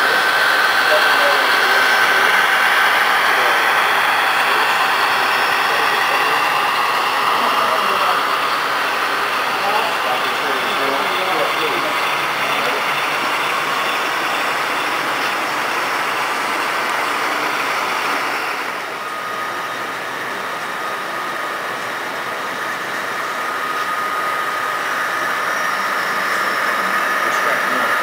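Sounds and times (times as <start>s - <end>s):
thin steady tone: 0.0s - 17.8s
hall background hubbub: 0.0s - 20.8s
model trains running: 0.0s - 28.0s.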